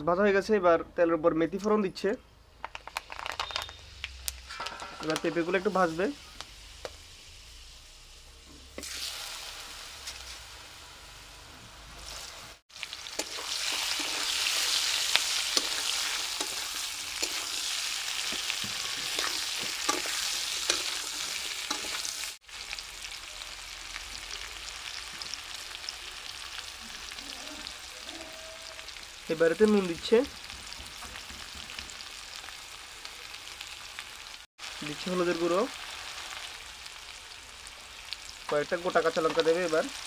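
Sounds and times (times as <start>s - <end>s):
food sizzling in hot oil: 2.7s - 40.0s.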